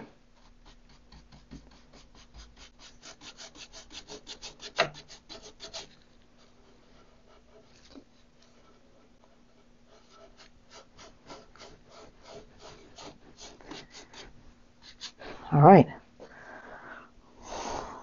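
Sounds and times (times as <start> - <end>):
paintbrush scrubbing wood: 0.3 - 15.3.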